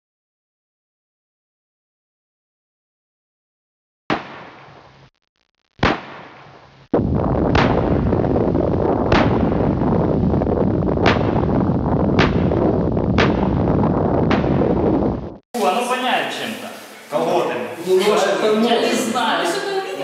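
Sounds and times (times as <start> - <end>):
booming hits: 5.8 - 15.4
dense noisy rush: 7.0 - 16.9.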